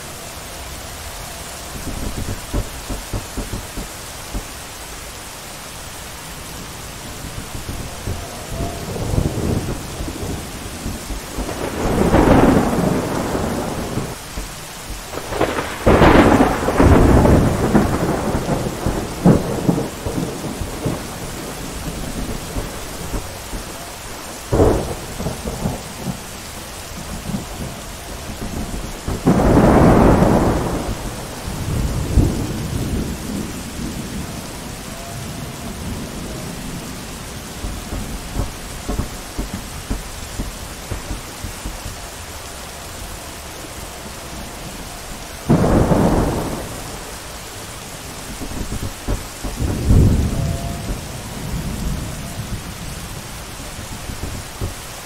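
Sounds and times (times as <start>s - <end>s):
steady rain falling: 0.0s - 55.0s
rolling thunder: 1.4s - 4.8s, 6.4s - 55.0s
sharp thunder crack: 1.7s - 4.5s, 7.2s - 26.4s, 27.0s - 34.4s, 35.8s - 42.0s, 45.4s - 47.3s, 48.2s - 52.7s.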